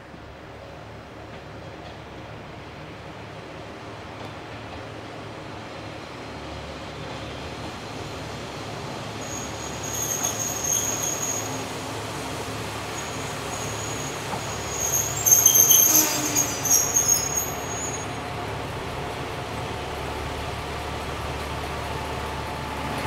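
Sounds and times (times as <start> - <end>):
low train engine hum: 0.0 - 23.0
train wheels squealing on rails: 4.0 - 19.4.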